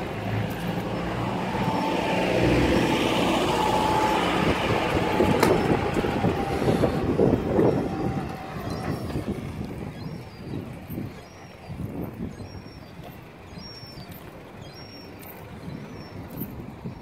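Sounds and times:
motor vehicle engine running: 0:00.0 - 0:11.0.

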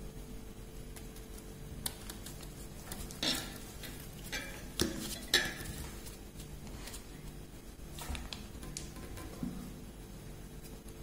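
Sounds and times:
paper crinkling and tapping: 0:00.9 - 0:07.1.

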